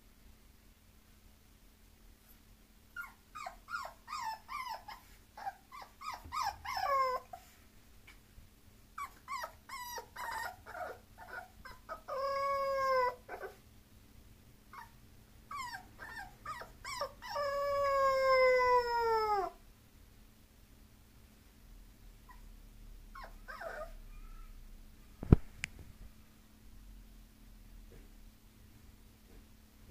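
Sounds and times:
puppy yelping and whining: 0:02.9 - 0:07.5, 0:09.0 - 0:13.6, 0:14.7 - 0:19.6, 0:22.2 - 0:22.5, 0:23.1 - 0:24.6.

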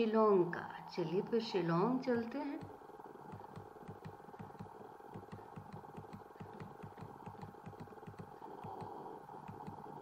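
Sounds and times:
faint low pulsing hum: 0:00.0 - 0:10.0
faint ticks: 0:02.6 - 0:10.0.

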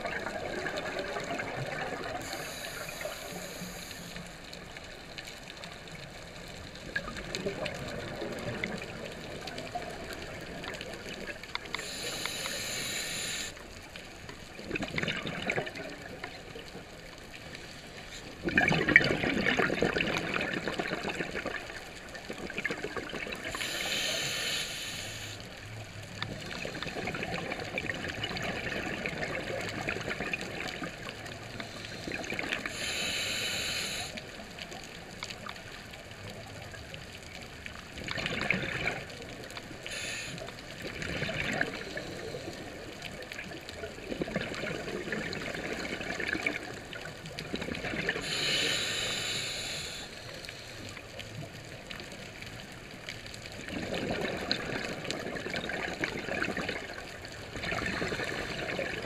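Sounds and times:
hissing regulator inhales: 0:02.2 - 0:04.3, 0:11.8 - 0:13.6, 0:23.5 - 0:25.4, 0:31.7 - 0:34.2, 0:39.9 - 0:40.5, 0:48.2 - 0:50.8
gurgling exhaust bubbles: 0:14.6 - 0:15.9, 0:18.4 - 0:23.6, 0:26.2 - 0:32.8, 0:37.9 - 0:39.4, 0:40.8 - 0:48.4, 0:53.5 - 0:59.0.

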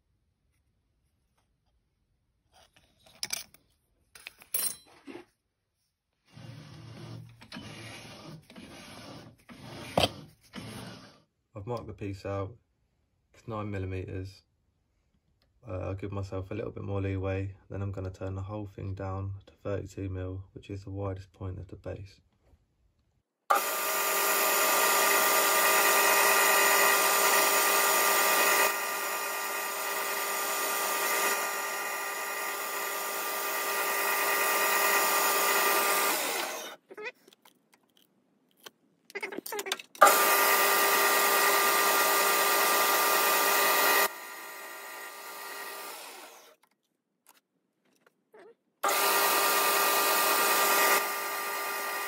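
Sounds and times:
lathe whining: 0:23.5 - 0:36.8, 0:40.0 - 0:46.5, 0:48.8 - 0:52.0.

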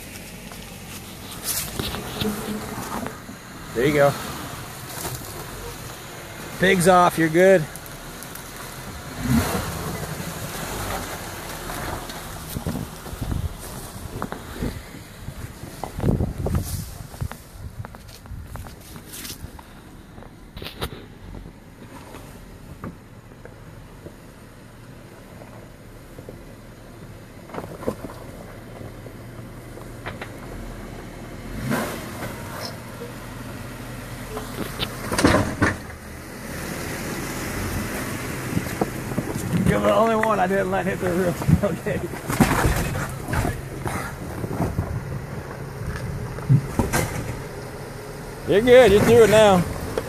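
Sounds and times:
engine running low: 0:00.0 - 0:50.0
tires scraping on rock: 0:00.0 - 0:50.0.

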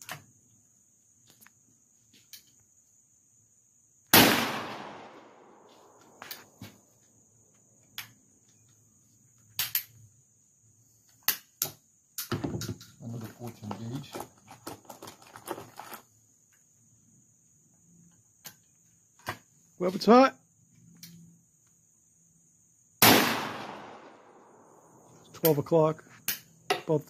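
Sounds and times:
high insect chirr: 0:00.0 - 0:27.0
shotgun blast with echo: 0:04.1 - 0:05.4, 0:23.0 - 0:24.1
metallic clicks of gun action: 0:09.5 - 0:10.0.

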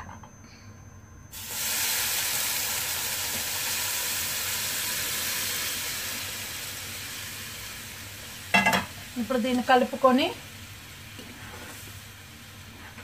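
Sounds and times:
water sizzling in hot pan: 0:01.3 - 0:13.0.

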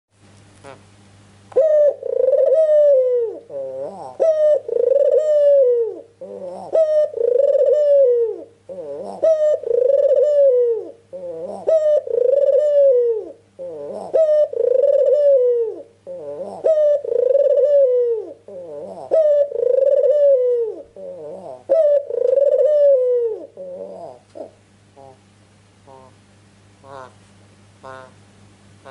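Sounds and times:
faint steady hum: 0:00.1 - 0:28.9
dove cooing: 0:01.5 - 0:26.2, 0:26.8 - 0:27.2, 0:27.8 - 0:28.2.

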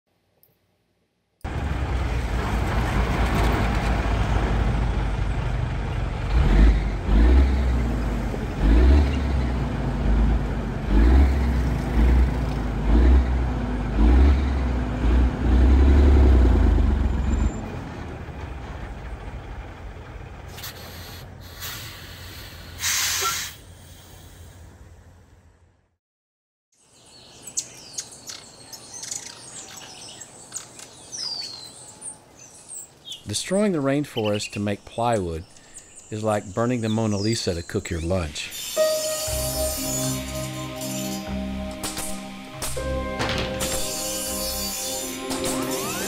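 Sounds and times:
truck engine rumbling: 0:01.4 - 0:25.8, 0:33.3 - 0:46.0
hiss burst: 0:20.5 - 0:24.6.

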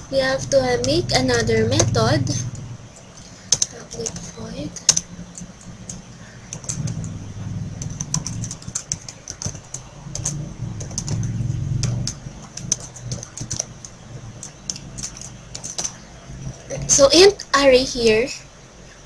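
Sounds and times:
low hum: 0:00.0 - 0:19.0
computer keyboard typing: 0:00.3 - 0:16.7.

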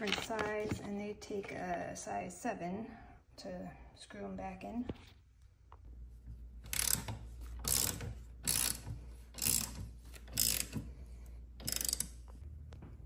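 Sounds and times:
socket ratchet clicking: 0:06.7 - 0:10.9, 0:11.6 - 0:12.3.

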